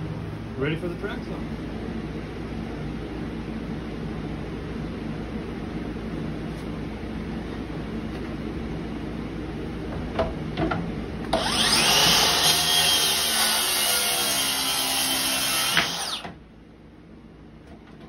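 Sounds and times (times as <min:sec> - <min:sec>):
low steady rumble: 0:00.0 - 0:11.7
track saw cutting plywood: 0:11.3 - 0:16.4.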